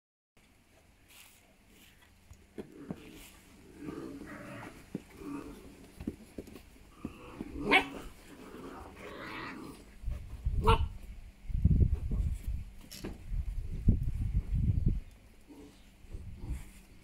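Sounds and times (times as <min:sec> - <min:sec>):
puppy barking: 0:07.6 - 0:08.0, 0:10.6 - 0:11.0.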